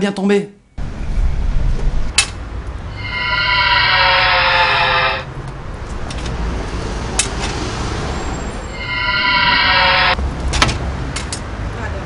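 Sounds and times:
street traffic rumble: 0.8 - 12.0
buzzy sliding tone: 2.9 - 5.4, 8.7 - 10.2.

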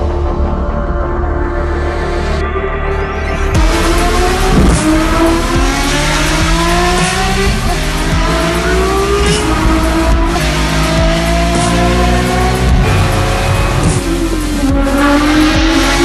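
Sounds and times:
car engine at full throttle: 3.6 - 16.0.

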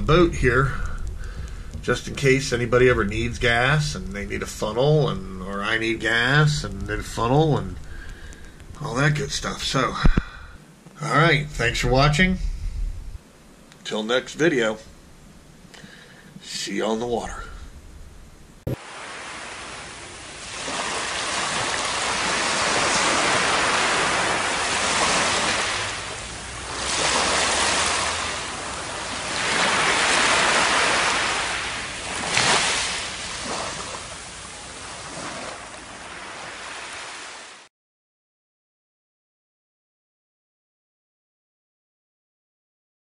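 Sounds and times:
ocean surf on a beach: 0.0 - 10.2, 18.7 - 37.7
water splash: 18.7 - 37.6.

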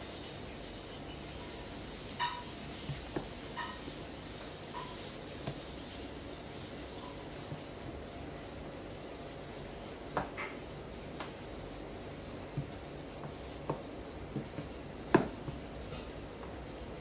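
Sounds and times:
rolling pin knocking on wooden board: 12.5 - 15.8.

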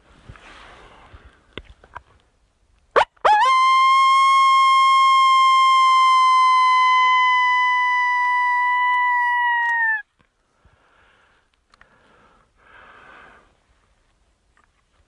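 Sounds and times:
person imitating wolf howl: 3.3 - 10.0.

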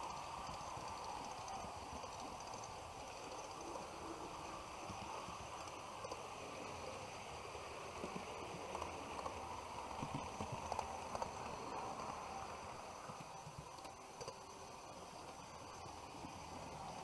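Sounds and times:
model trains running: 0.0 - 17.0
wheels clicking over rail joints: 7.5 - 17.0.

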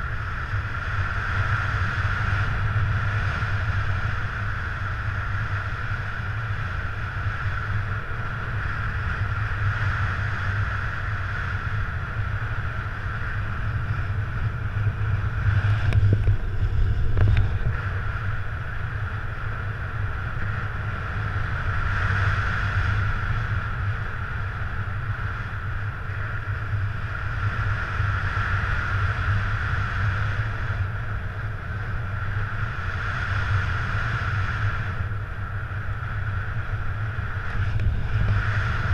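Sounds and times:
wind rushing over microphone: 0.0 - 38.9.

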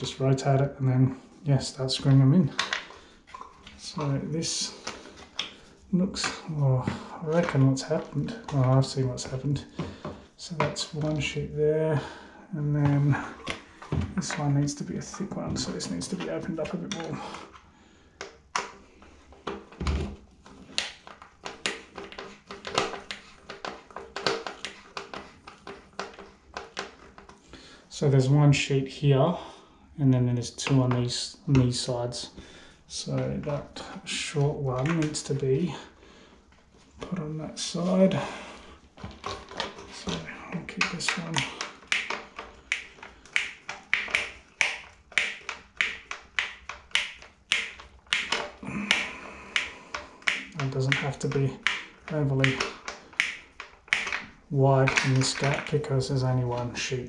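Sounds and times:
plastic fan housing clicks: 40.8 - 54.2.

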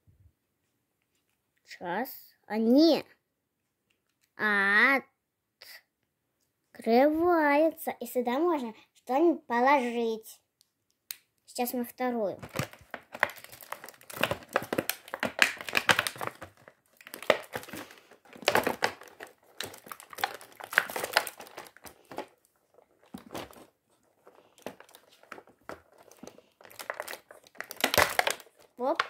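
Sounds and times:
plastic packaging crinkling: 12.4 - 29.0.

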